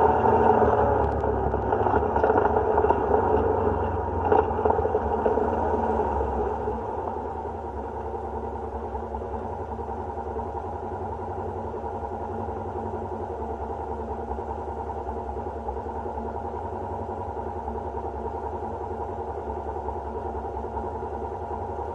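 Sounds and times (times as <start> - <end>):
engine idling: 0.0 - 21.9.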